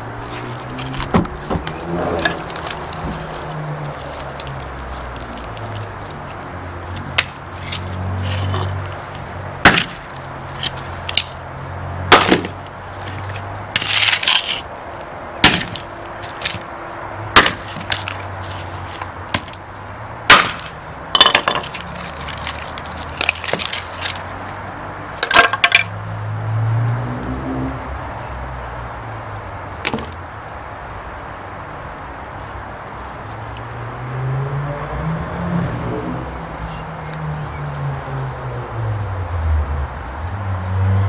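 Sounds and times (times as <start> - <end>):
debris crunching: 0.2 - 11.4, 12.1 - 14.7, 15.4 - 16.7, 17.3 - 19.6, 20.3 - 24.6.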